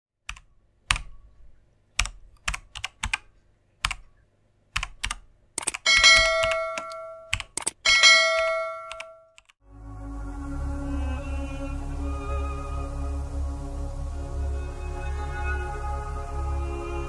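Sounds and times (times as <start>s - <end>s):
keyboard keystroke clicks: 0.3s - 1.2s, 2.0s - 4.1s, 4.7s - 7.8s, 8.4s - 9.6s
bell-like notification ding: 7.9s - 9.3s.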